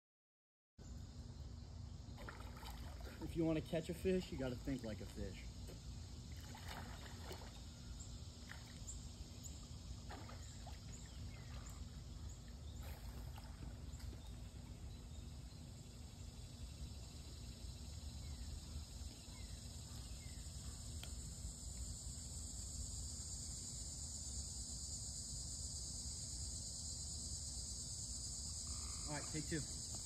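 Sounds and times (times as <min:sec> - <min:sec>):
insects droning: 0:00.8 - 0:30.0
water splashes from swimming: 0:02.2 - 0:03.6, 0:06.3 - 0:07.6, 0:08.4 - 0:08.9, 0:10.0 - 0:11.9.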